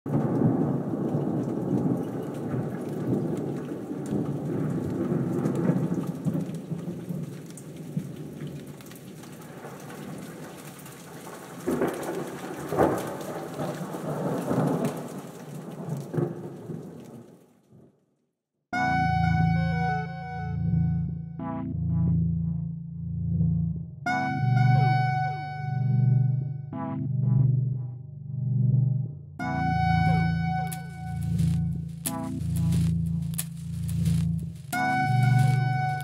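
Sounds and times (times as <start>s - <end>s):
loud thunder claps: 0.1s - 17.3s
rumbling thunder: 0.1s - 17.3s
steady rain: 0.1s - 17.6s, 30.0s - 36.0s.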